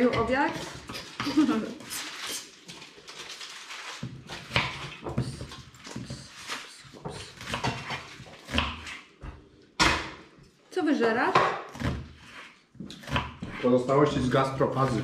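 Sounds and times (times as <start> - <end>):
knife slicing onion on wooden board: 4.3 - 9.4, 11.4 - 13.7.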